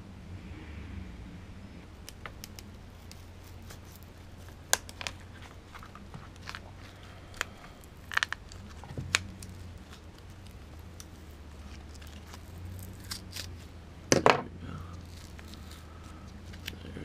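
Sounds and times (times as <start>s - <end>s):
paper casing cracking and snapping: 2.0s - 13.7s, 15.0s - 16.8s.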